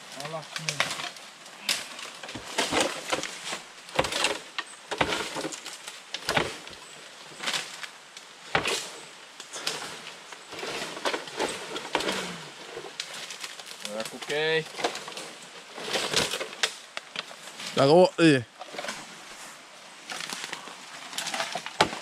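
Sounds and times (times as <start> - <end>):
bamboo knocking and cracking: 0.5 - 6.8, 10.8 - 15.2, 20.1 - 22.0.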